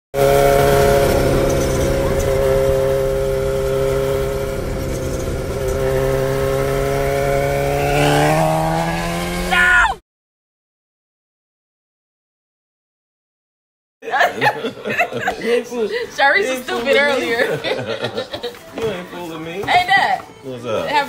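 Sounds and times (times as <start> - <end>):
motorcycle engine droning: 0.1 - 9.9.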